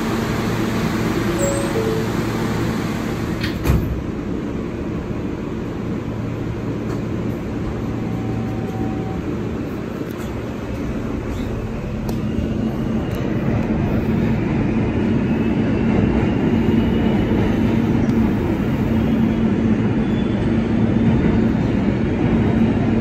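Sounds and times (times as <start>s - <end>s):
subway car doors sliding shut: 0.0s - 4.7s, 6.4s - 14.3s
train rumble and hum: 0.0s - 23.0s.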